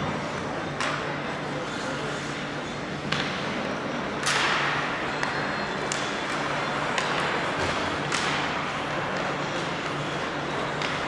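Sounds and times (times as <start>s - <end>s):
hockey sticks clacking on puck: 0.7s - 1.1s, 3.0s - 3.6s, 4.2s - 11.0s.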